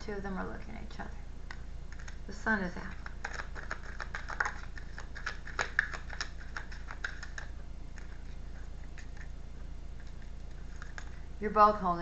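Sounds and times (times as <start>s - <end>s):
cards shuffling: 1.9s - 2.2s, 2.9s - 9.4s, 10.0s - 11.2s.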